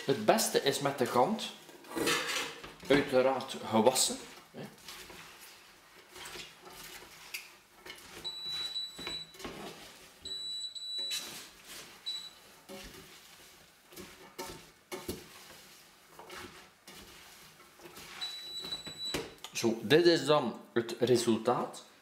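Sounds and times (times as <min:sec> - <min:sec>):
metal pans knocking and clinking: 0:01.9 - 0:03.3.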